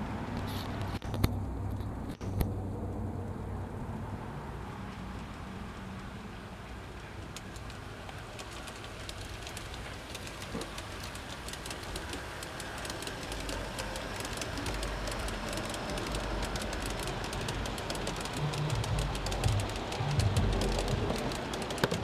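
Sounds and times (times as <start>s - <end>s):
low train rumble: 0.0s - 22.0s
train wheels clicking on rail joints: 6.6s - 22.0s.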